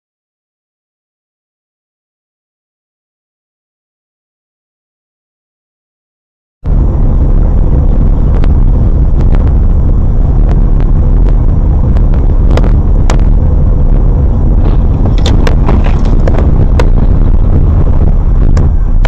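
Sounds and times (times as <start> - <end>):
car engine and road rumble: 6.6 - 19.0
sharp clicks and knocks: 14.6 - 17.3.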